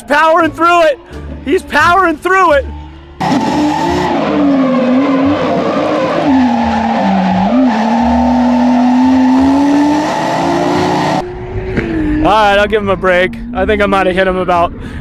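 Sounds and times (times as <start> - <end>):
car engine revving high: 3.2 - 12.3.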